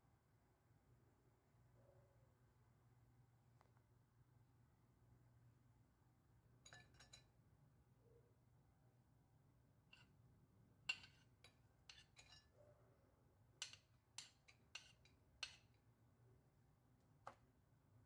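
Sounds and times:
onion clinking on ceramic plate: 6.6s - 7.3s, 10.8s - 12.6s, 13.6s - 15.8s.

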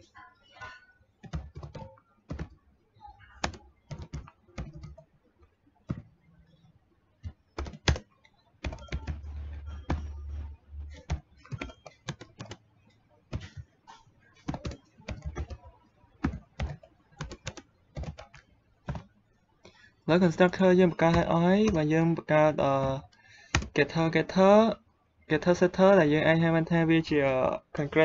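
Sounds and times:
computer keyboard typing: 1.2s - 2.6s, 3.4s - 5.1s, 5.8s - 6.6s, 7.2s - 13.8s, 14.4s - 24.4s.

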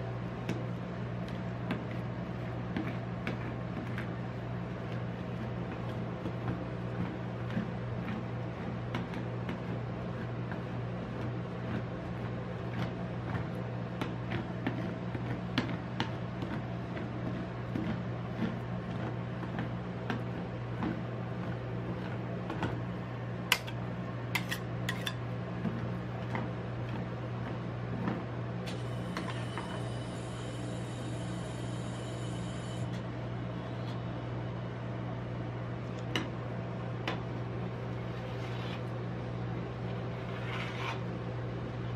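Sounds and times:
machine low hum: 0.0s - 41.9s
metal spatula scraping steel plate: 24.4s - 25.2s, 40.2s - 41.1s.

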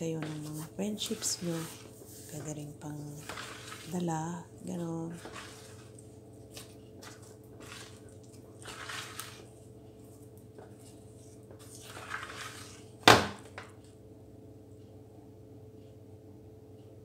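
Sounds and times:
faint steady hum: 0.0s - 17.0s
spatula squelching through batter: 0.2s - 13.0s.

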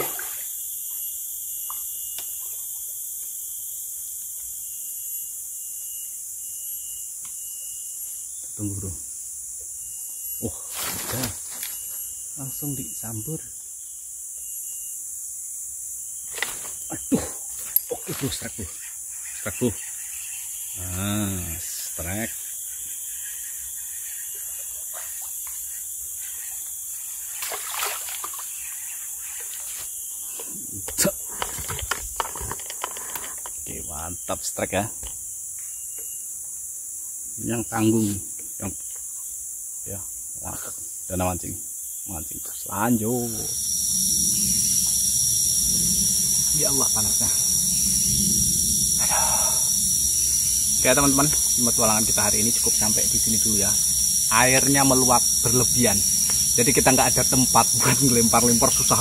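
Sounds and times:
insects chorus: 0.0s - 59.0s
fish splashing at water surface: 27.4s - 28.5s
faint thin whine: 43.1s - 59.0s.

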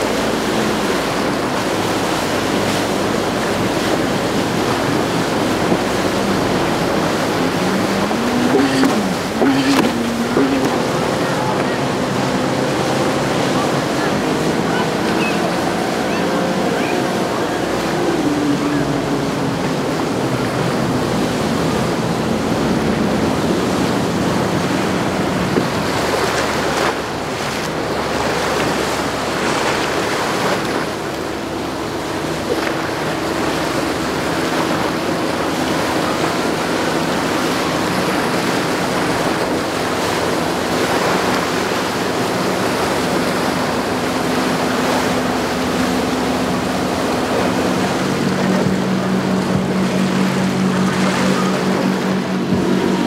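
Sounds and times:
boat engines humming: 0.0s - 53.0s
wake water rushing: 0.0s - 53.0s
wind on microphone: 0.0s - 53.0s.

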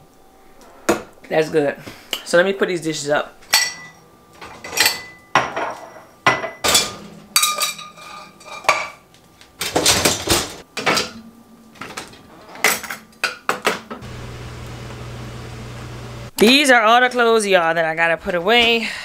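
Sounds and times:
dishes and cutlery clattering: 3.5s - 9.0s.

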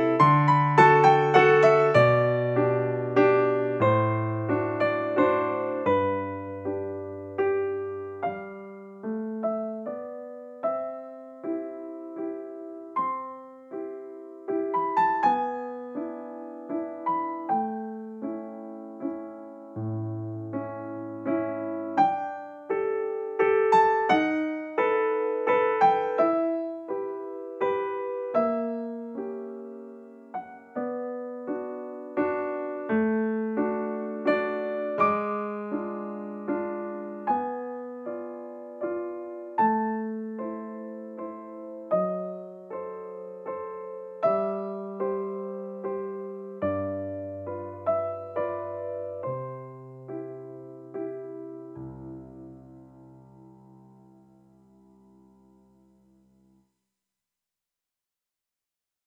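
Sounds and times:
gentle piano melody: 0.0s - 56.7s.

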